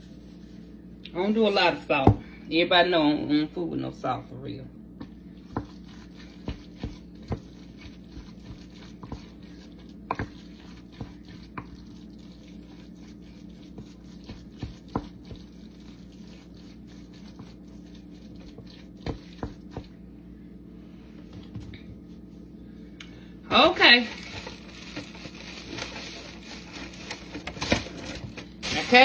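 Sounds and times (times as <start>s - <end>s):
steady low hum: 0.0s - 29.0s
spoon mashing wet food: 5.0s - 20.0s.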